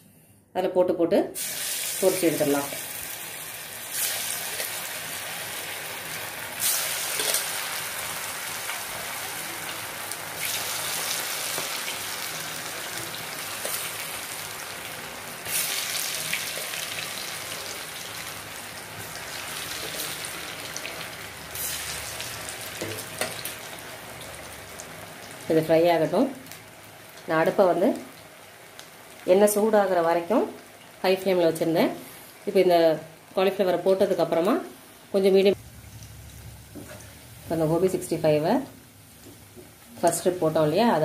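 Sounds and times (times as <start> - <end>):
cauliflower deep-frying in oil: 1.4 - 31.6.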